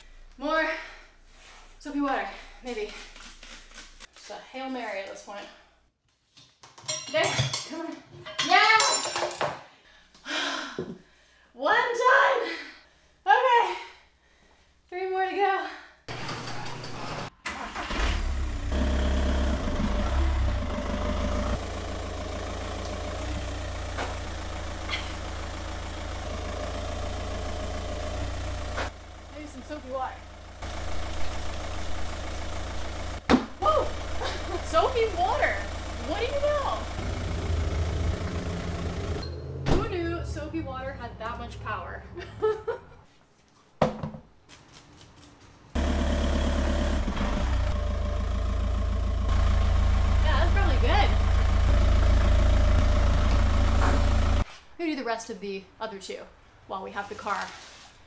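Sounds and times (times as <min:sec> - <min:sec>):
car engine idling: 0:18.5 - 0:41.7, 0:45.8 - 0:54.4.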